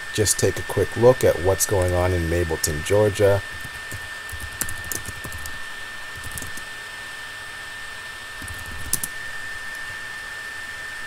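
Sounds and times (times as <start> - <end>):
steady hiss: 0.0 - 11.0
keyboard typing clicks: 1.7 - 2.1, 3.4 - 6.7, 8.4 - 9.8.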